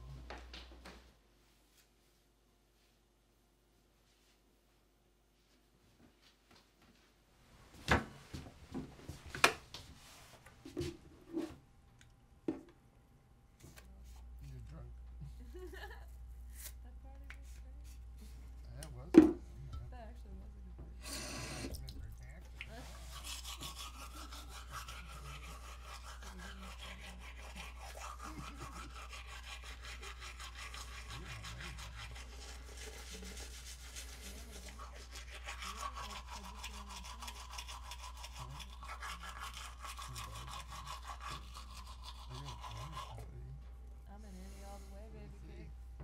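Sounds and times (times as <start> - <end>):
toothbrush scrubbing teeth: 21.2 - 43.4.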